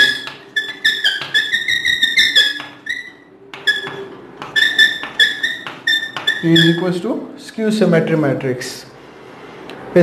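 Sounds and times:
chalk tapping on board: 0.0 - 6.8
chalk squeaking on chalkboard: 0.0 - 7.2.

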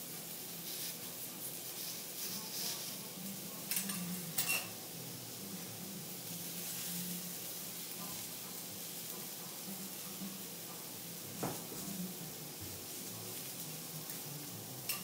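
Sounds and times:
mushrooms sizzling on a griddle: 0.0 - 15.0
knife and spatula clinking on metal: 3.7 - 4.8.

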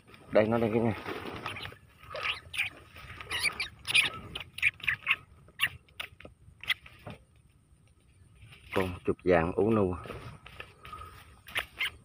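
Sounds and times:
rat squeaking: 1.3 - 7.0, 11.5 - 12.0.

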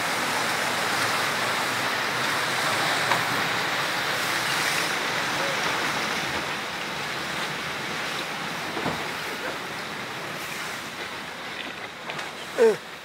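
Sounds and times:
river ice grinding: 9.4 - 13.0.

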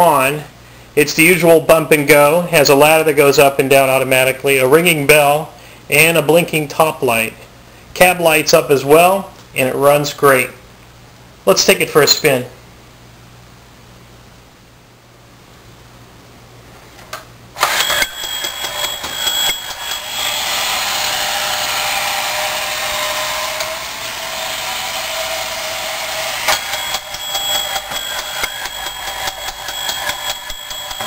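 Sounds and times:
toy motor and gears whirring: 17.6 - 31.0
toy bell ringing: 26.6 - 31.0.

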